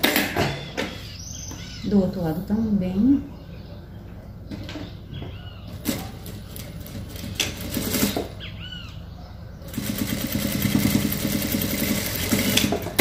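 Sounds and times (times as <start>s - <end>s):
sewing machine stitching: 5.8s - 8.3s, 9.7s - 13.0s.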